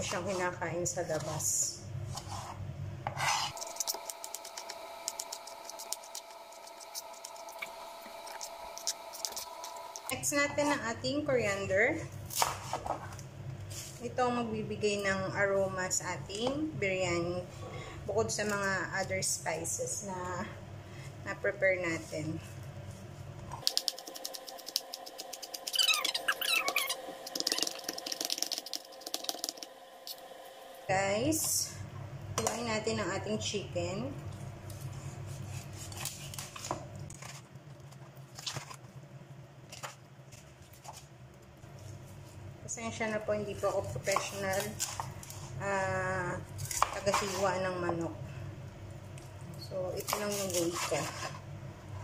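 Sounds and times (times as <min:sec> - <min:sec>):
light scraping in a kitchen: 0:00.0 - 0:03.9, 0:12.4 - 0:14.3, 0:34.7 - 0:37.4, 0:46.7 - 0:47.8, 0:50.1 - 0:51.5
faint steady hum: 0:00.0 - 0:52.0
high squeaky chirps: 0:25.6 - 0:27.1.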